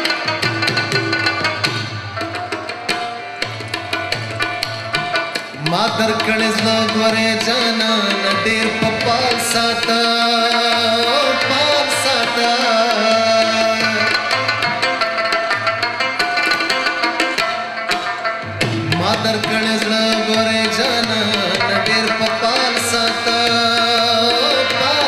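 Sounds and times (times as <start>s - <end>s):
harmonium chords: 0.0s - 25.0s
man singing: 5.6s - 14.4s, 18.9s - 25.0s.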